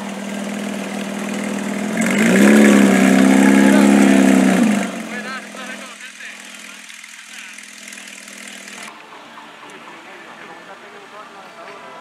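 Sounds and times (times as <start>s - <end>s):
car engine revving: 0.0s - 8.9s.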